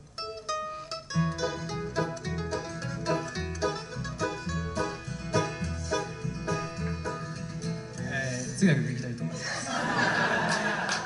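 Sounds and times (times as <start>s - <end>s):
plucked lead-in notes: 0.0s - 8.1s
bluegrass band playing: 0.0s - 10.9s.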